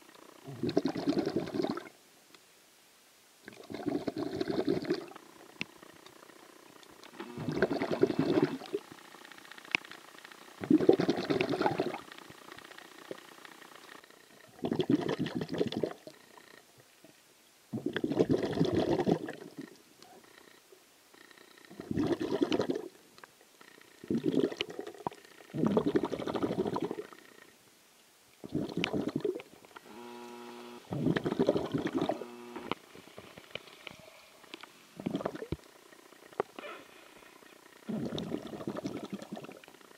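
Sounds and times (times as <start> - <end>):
water bubbling underwater: 0.5 - 1.9, 3.5 - 5.2, 7.3 - 8.8, 10.6 - 12.0, 14.6 - 16.1, 17.7 - 19.6, 21.8 - 22.9, 24.1 - 27.1, 28.4 - 29.5, 30.9 - 32.2, 35.0 - 35.7, 37.9 - 39.7.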